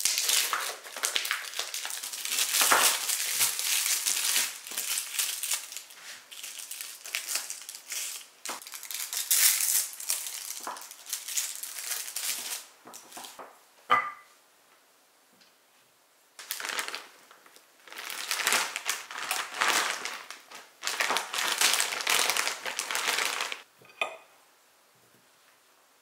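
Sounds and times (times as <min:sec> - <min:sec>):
plastic packaging crinkling: 0:00.0 - 0:13.4, 0:16.4 - 0:23.7.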